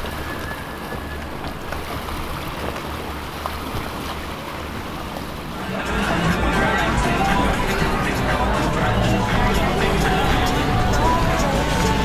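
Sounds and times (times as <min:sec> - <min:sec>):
motorboat engine running: 0:00.0 - 0:12.0
water wash: 0:00.0 - 0:12.0.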